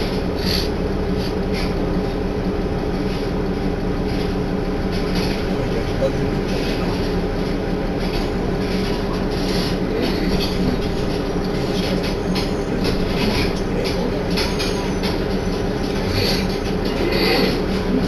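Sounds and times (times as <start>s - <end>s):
railcar engine hum: 0.0s - 18.0s
wheels rumbling on rails: 0.0s - 18.0s.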